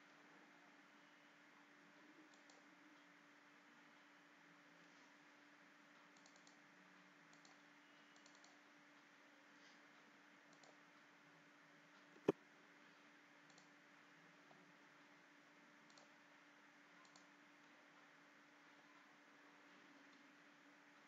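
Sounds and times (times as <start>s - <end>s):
low steady hum: 0.0s - 21.0s
computer mouse clicks: 2.3s - 2.7s, 6.1s - 6.6s, 7.3s - 8.7s, 10.5s - 10.8s, 13.4s - 13.8s, 15.8s - 16.2s, 17.0s - 17.3s.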